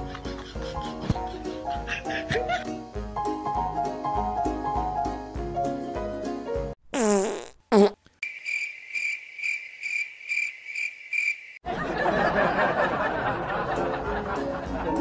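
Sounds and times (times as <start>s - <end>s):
background music: 0.0s - 6.8s, 12.7s - 15.0s
wet fart sounds: 6.9s - 8.1s
cricket chirp sound effect: 8.2s - 11.6s.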